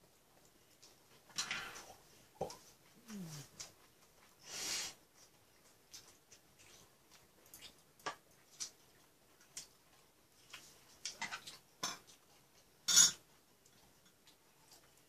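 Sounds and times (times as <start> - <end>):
dishes clattering: 12.9 - 13.2.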